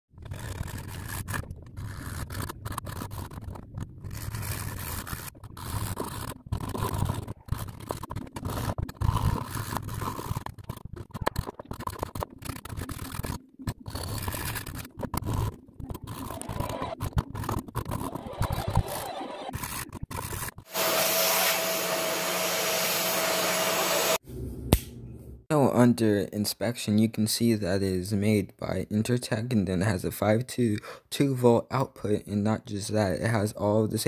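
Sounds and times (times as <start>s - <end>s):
hacksaw sawing through plastic: 0.2s - 21.8s.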